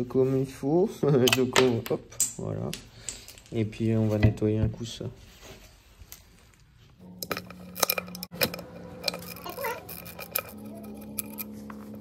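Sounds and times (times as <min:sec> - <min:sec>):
metal tools clinking: 0:07.0 - 0:12.0.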